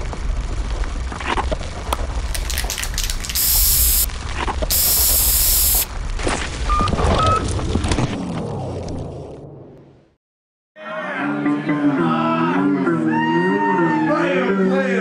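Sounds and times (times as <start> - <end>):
aerosol spray can hissing: 2.3 - 4.1, 4.7 - 5.9.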